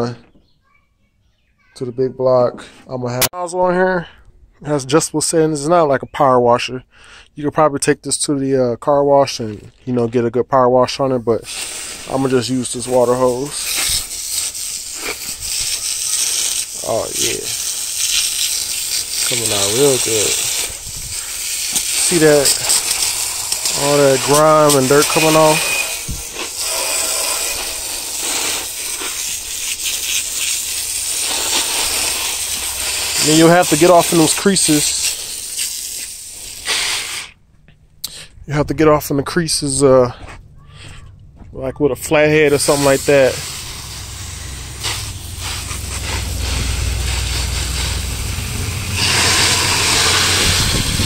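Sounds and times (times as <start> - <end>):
hose water jet spattering on metal: 11.4 - 37.3, 42.5 - 51.0
low steady rumble: 40.1 - 51.0.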